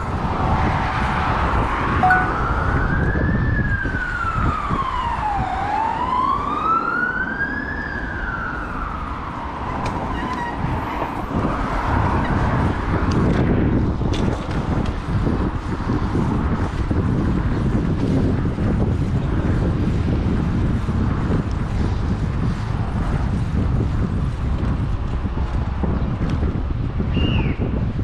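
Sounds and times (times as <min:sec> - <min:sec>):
street rumble: 0:00.0 - 0:28.0
wind: 0:00.0 - 0:28.0
emergency vehicle siren wailing: 0:02.0 - 0:10.6.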